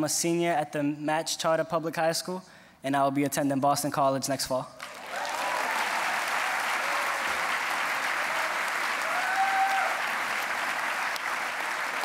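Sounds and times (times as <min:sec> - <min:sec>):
audience applauding: 0:04.8 - 0:12.0
person whooping: 0:08.2 - 0:10.1.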